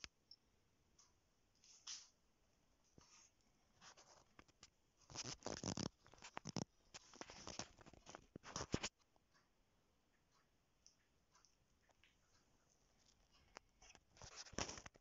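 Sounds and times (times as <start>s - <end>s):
scratchy handling noise: 3.0s - 9.0s, 13.0s - 15.0s.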